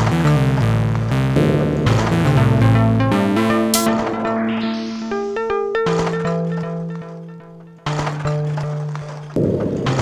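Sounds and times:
synthesizer techno: 3.0s - 6.6s.

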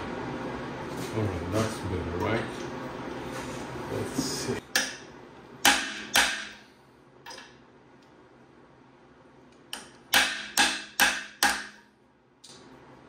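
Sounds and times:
hammer striking metal: 4.7s - 6.7s, 9.8s - 11.9s.

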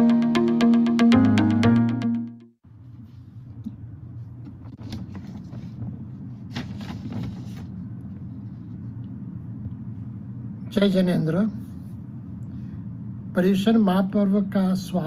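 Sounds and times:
low room hum: 2.6s - 15.0s
faint clicks and rustles: 4.4s - 9.8s.

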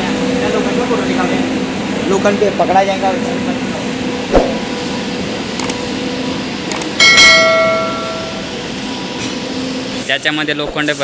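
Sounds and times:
low train hum: 0.0s - 10.1s
bright bell ding: 7.0s - 8.5s.

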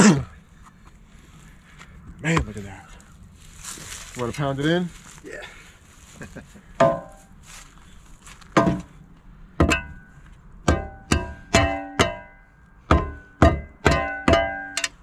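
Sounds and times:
steel tool striking dirt and stone: 6.8s - 7.3s, 8.6s - 8.9s, 9.6s - 15.0s.

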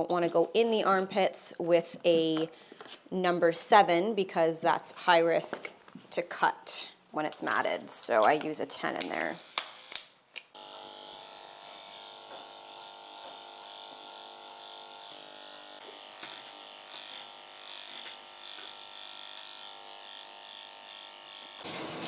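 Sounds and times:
electric clippers humming: 9.0s - 22.0s.

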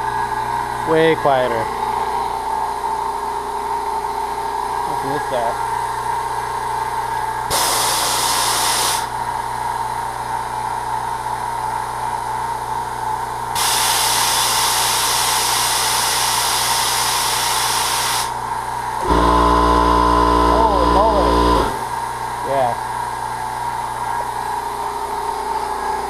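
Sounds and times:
air compressor motor hum: 0.0s - 10.3s, 13.6s - 22.7s
loud air hiss: 7.5s - 9.1s, 13.6s - 18.4s.

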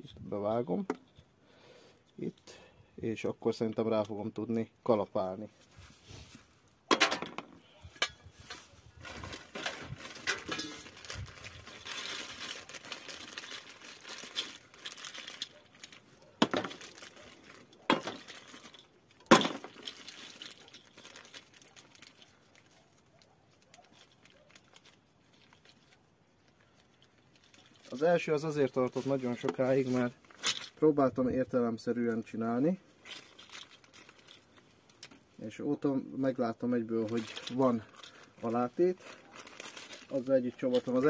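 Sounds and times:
plastic scraping and rustling: 5.2s - 41.0s.

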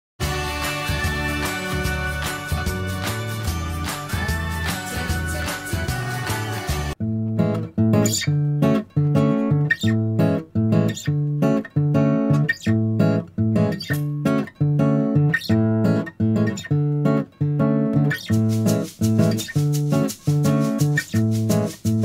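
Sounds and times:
acoustic guitar picking: 7.0s - 22.0s.

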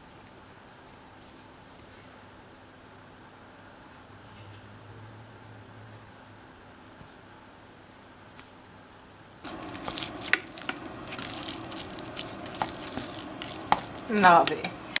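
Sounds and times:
steady noisy hiss: 0.0s - 15.0s
chopsticks scraping metal pot: 9.5s - 14.8s.

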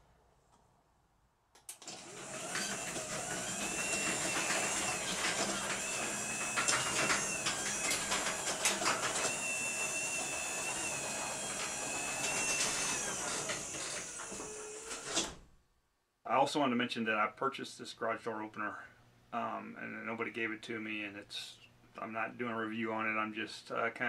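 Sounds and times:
garage door opener motor hum: 1.7s - 15.4s
garage door clicks and clunks: 1.8s - 15.4s.

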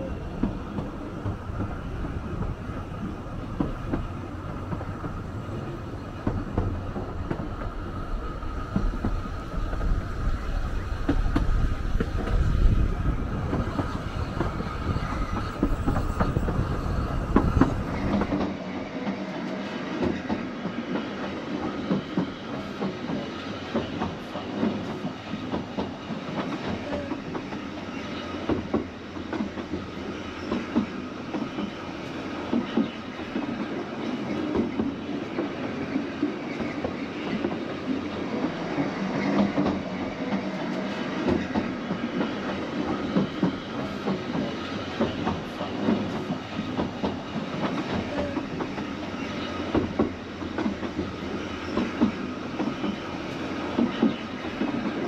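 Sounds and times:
train running noise: 0.0s - 55.0s
train wheels clicking and rattling: 0.0s - 55.0s.

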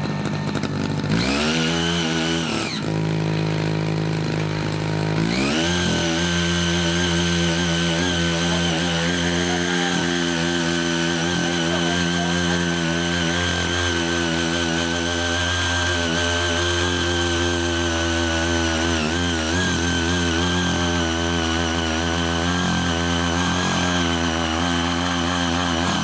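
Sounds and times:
small petrol engine revving: 0.0s - 26.0s
tines churning soil: 0.0s - 26.0s.

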